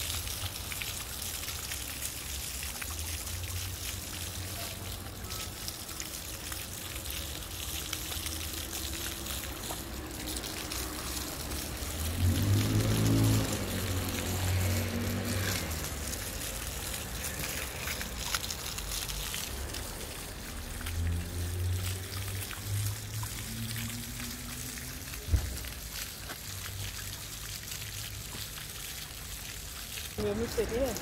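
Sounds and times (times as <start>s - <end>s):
fountain water splashing on paving: 0.0s - 31.0s.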